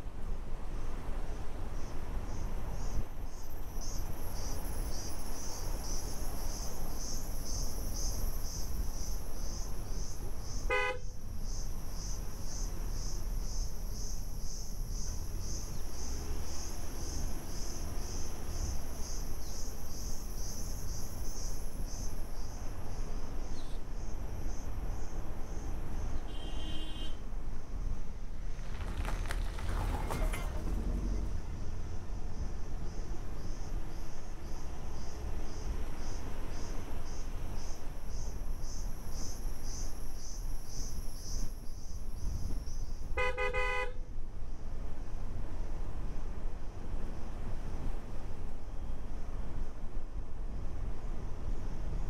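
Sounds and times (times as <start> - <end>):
vehicle rumble: 0.0 - 52.0
insects chorus: 1.3 - 44.7
vehicle horn toot: 10.7 - 11.1, 26.3 - 27.2, 43.2 - 44.0.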